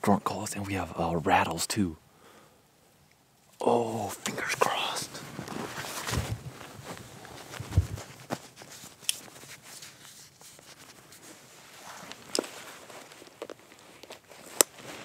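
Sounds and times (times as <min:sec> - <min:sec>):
clothing rustling: 0:04.2 - 0:15.0.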